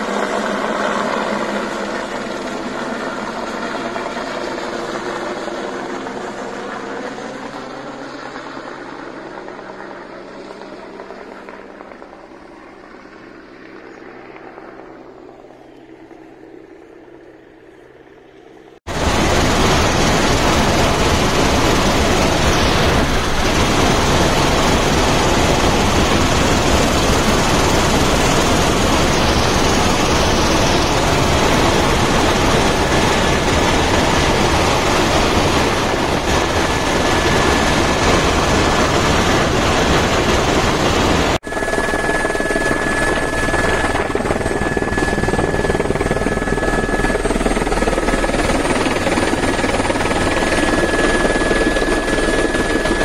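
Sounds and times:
helicopter rotor and engine noise: 0.0 - 53.0
steady high whine: 13.7 - 53.0.

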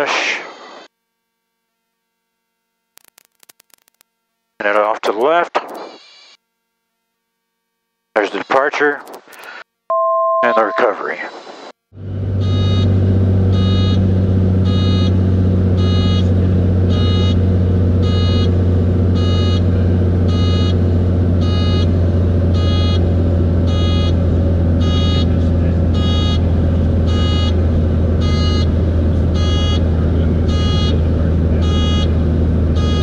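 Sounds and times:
electronic warning beep: 9.9 - 11.2, 12.4 - 12.9, 13.5 - 14.0, 14.6 - 15.2, 15.8 - 16.3, 16.9 - 17.4, 18.0 - 18.5, 19.2 - 19.6, 20.3 - 20.8, 21.4 - 21.9, 22.5 - 23.1, 23.7 - 24.2, 24.8 - 26.5, 27.1 - 27.6, 28.2 - 28.8, 29.4 - 32.1, 32.8 - 33.0
light aircraft engine drone: 12.0 - 33.0.

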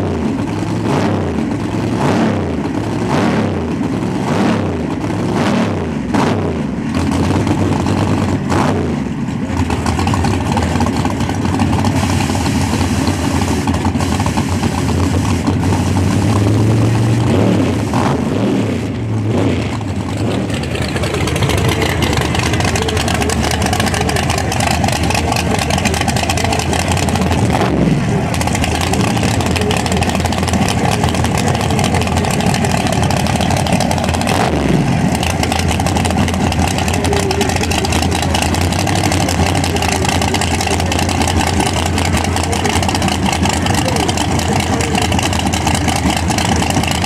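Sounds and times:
drag racing engines running loudly: 0.0 - 47.0
engine falling pitch sweeps: 9.8 - 47.0.

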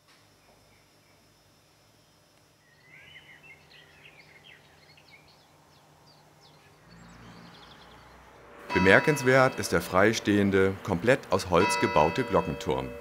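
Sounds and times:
songbird warbling: 2.6 - 5.8.

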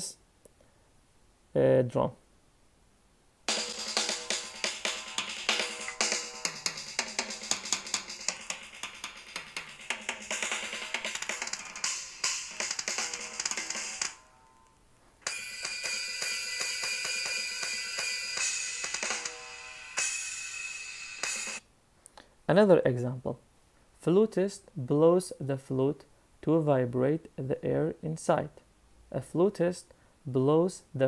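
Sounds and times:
drums playing a fast beat: 3.5 - 14.2, 15.3 - 21.6.

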